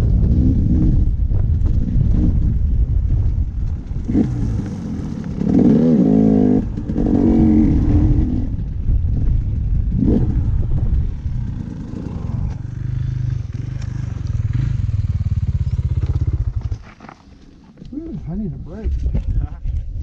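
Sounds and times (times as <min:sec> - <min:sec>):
dirt bike engine revving: 0:00.0 - 0:16.8.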